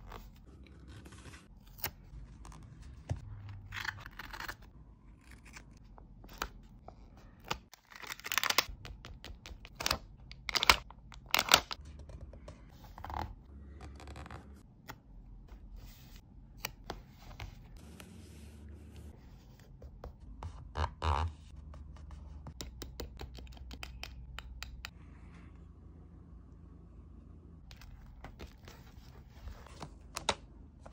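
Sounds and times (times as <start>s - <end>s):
small clicks and taps: 22.5s - 25.0s.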